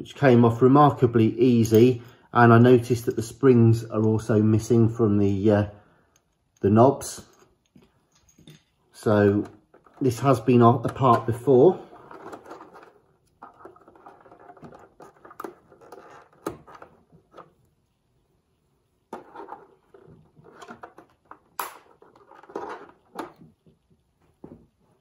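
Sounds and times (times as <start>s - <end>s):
plastic clicks and scraping: 7.3s - 17.6s, 19.1s - 23.8s.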